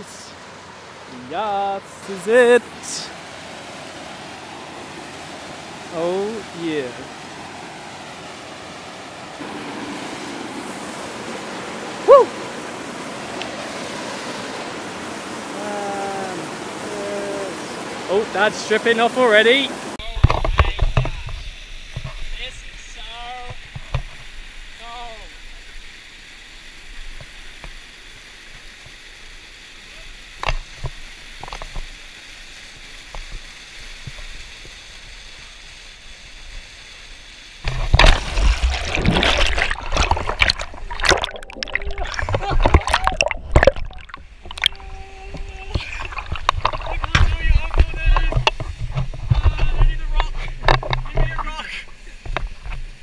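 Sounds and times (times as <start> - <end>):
waterfall rushing: 0.0 - 26.6, 37.6 - 53.0
man shouting: 12.0 - 12.4
sharp knocks or splashes: 37.6 - 51.4.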